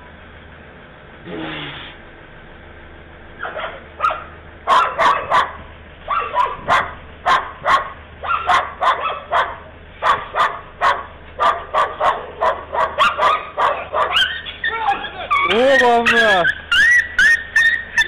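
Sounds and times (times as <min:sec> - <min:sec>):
dog barking: 0:03.4 - 0:17.8.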